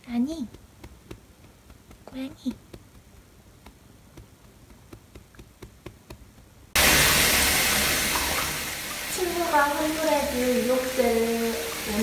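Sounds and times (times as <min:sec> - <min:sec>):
soft pats on a cat: 0:00.2 - 0:06.5
tap water running into bathtub: 0:06.8 - 0:12.0.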